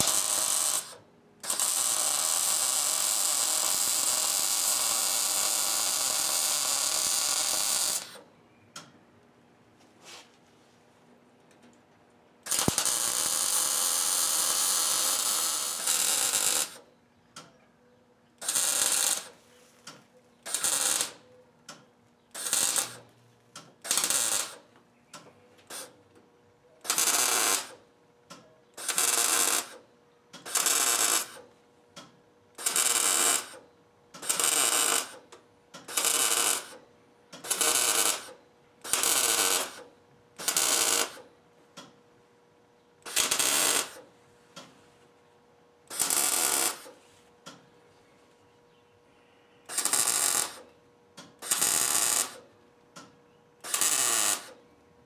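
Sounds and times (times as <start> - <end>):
welder crackling: 0.0 - 8.2, 12.4 - 17.5, 18.4 - 25.9, 26.8 - 27.8, 28.8 - 29.8, 30.4 - 31.4, 32.6 - 33.6, 34.2 - 36.8, 37.4 - 41.3, 43.0 - 44.0, 45.9 - 47.0, 49.7 - 52.5, 53.6 - 54.6
short stitch welds: 0.0 - 8.9, 12.4 - 17.5, 18.4 - 26.0, 26.8 - 27.8, 28.7 - 42.0, 43.0 - 44.8, 45.8 - 47.6, 49.6 - 54.6
faint steady hum: 43.7 - 51.8.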